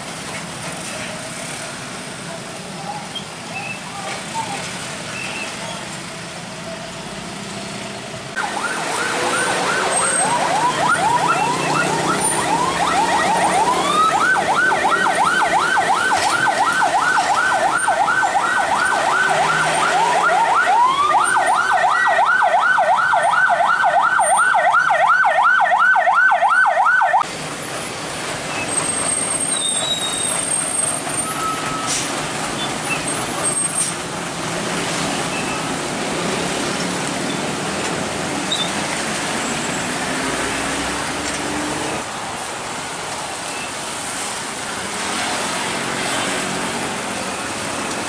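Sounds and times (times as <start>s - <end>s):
traffic rumble: 0.0s - 48.0s
electronic yelp siren: 8.4s - 27.2s.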